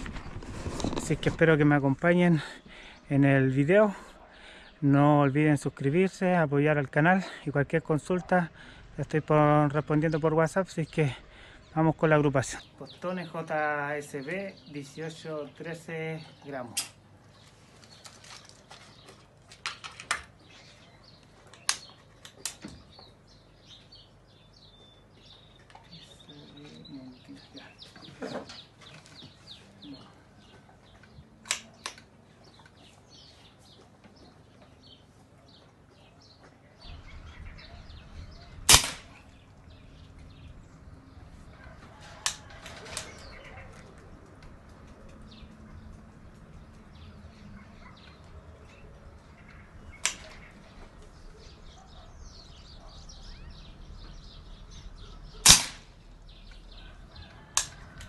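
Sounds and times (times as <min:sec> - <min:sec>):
small birds chirping: 0:00.0 - 0:58.0
rifle action clicks: 0:31.4 - 0:32.1, 0:38.7 - 0:39.1, 0:50.0 - 0:50.4, 0:55.4 - 0:55.9
air rifle shots: 0:37.5 - 0:39.4, 0:49.9 - 0:50.4, 0:55.3 - 0:56.1.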